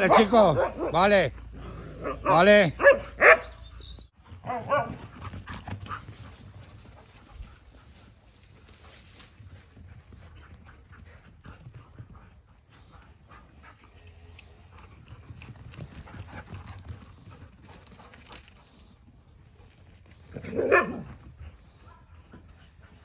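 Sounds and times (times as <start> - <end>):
dog paws pattering on grass: 3.9 - 20.5.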